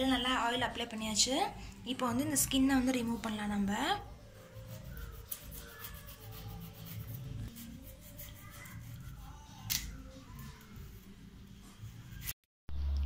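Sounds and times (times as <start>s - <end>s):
knife scraping vegetable skin: 4.4s - 9.9s.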